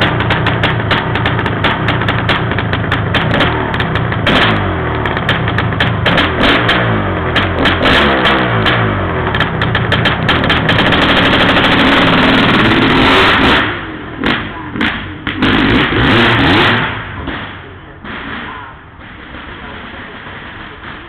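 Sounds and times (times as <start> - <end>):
dirt bike engine revving: 0.0 - 19.9.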